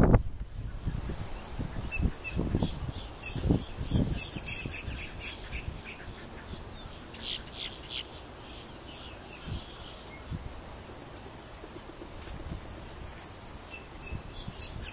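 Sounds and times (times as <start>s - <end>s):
bird yipping calls: 1.7s - 10.4s, 13.7s - 14.9s.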